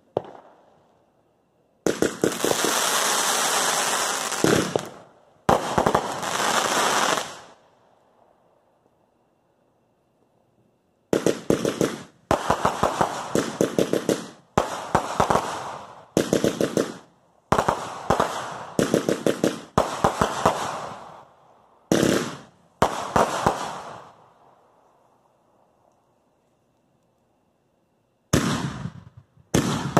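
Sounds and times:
fireworks bangs: 0:01.8 - 0:07.6, 0:11.1 - 0:21.3, 0:21.9 - 0:24.2, 0:28.3 - 0:29.9.

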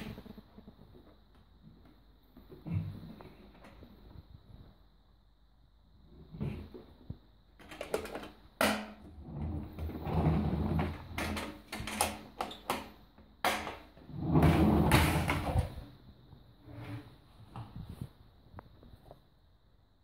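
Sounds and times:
lid knocks and clicks: 0:07.6 - 0:09.0.

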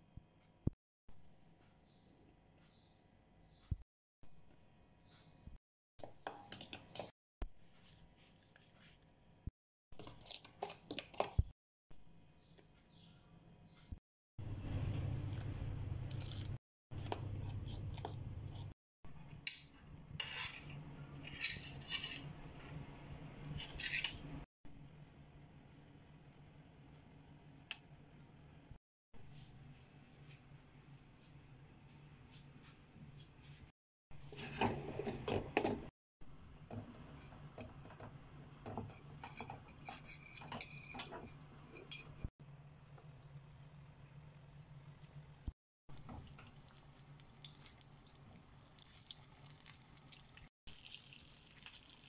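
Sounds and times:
batter mixed in steel bowl: 0:06.0 - 0:07.1, 0:20.1 - 0:24.4
spoon scraping metal bowl: 0:20.2 - 0:24.4, 0:38.7 - 0:42.3
wet squishes of filling: 0:46.1 - 0:52.0.

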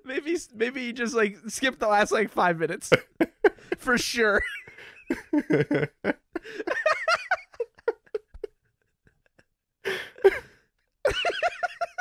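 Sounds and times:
men laughing: 0:02.9 - 0:09.4, 0:10.2 - 0:12.0.

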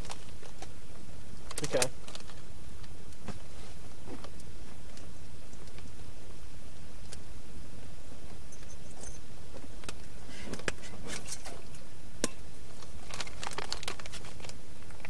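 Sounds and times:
plastic pouches crinkling: 0:01.4 - 0:02.5, 0:12.7 - 0:15.0.

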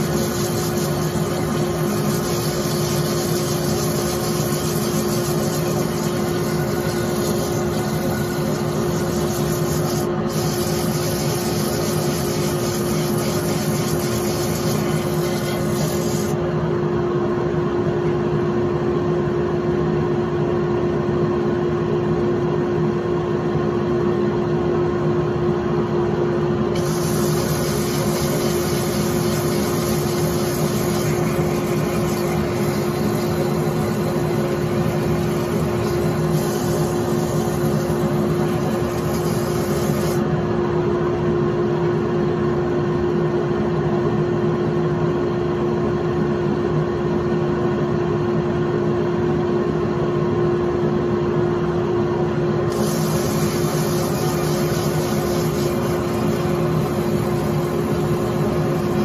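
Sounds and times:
sandpaper hissing on spinning wood: 0:00.0 - 0:16.4, 0:26.7 - 0:40.2, 0:52.7 - 0:59.0
wood lathe humming: 0:00.0 - 0:16.4, 0:26.8 - 0:40.2, 0:52.8 - 0:59.0.

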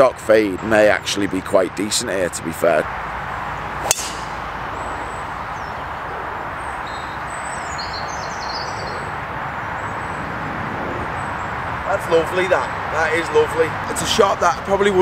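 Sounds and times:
outdoor background hiss: 0:00.0 - 0:15.0
golf club striking ball: 0:03.8 - 0:04.7
faint bird chirps: 0:04.7 - 0:09.2.

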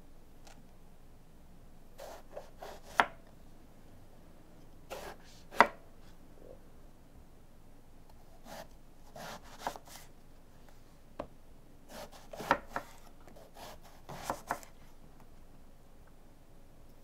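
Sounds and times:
knife slicing eggplant: 0:02.0 - 0:03.2, 0:04.9 - 0:05.8, 0:08.4 - 0:09.9, 0:11.9 - 0:14.6.

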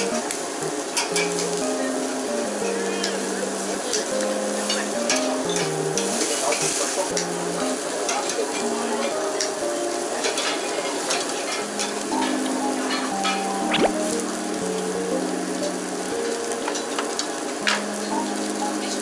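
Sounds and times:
beef sizzling on a grill: 0:00.0 - 0:19.0.

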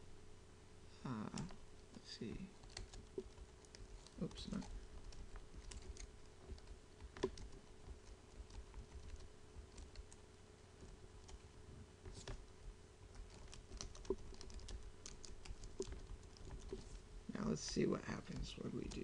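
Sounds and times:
computer keyboard typing: 0:02.5 - 0:16.9, 0:18.3 - 0:19.0.

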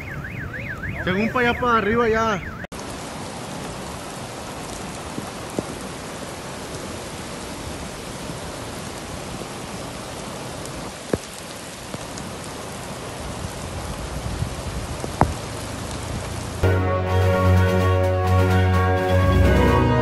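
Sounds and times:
heavy rain on a car: 0:02.7 - 0:16.6.

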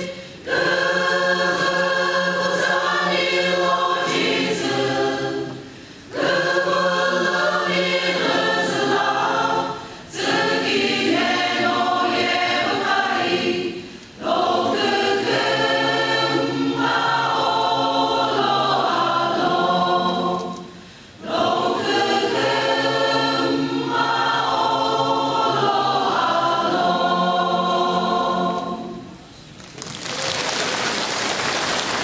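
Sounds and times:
choir singing gospel song: 0:00.0 - 0:29.2
applause: 0:29.6 - 0:32.0.

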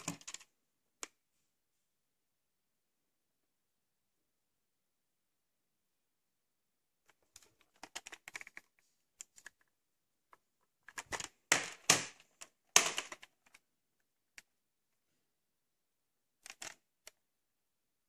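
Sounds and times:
plastic cassette clicking: 0:07.2 - 0:09.7, 0:16.4 - 0:17.2.

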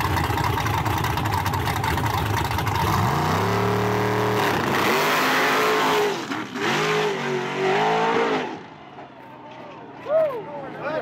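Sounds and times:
pickup engine accelerating hard: 0:00.0 - 0:08.7.

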